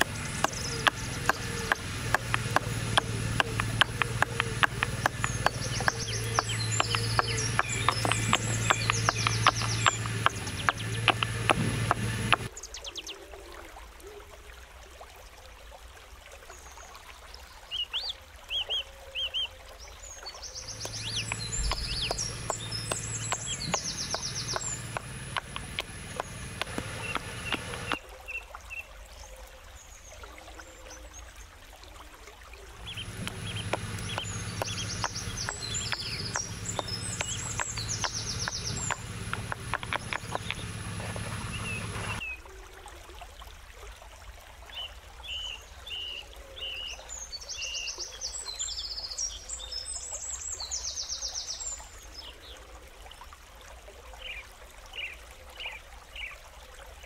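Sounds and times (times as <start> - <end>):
rapid even clicks: 0.0 - 12.5, 20.8 - 28.0, 32.8 - 42.2
small birds chirping: 0.0 - 13.1, 20.2 - 28.0, 32.8 - 42.3.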